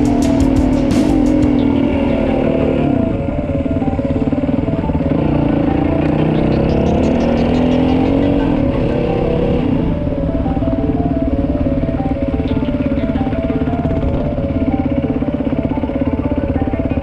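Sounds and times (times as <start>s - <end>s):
dirt bike engine running: 0.0s - 17.0s.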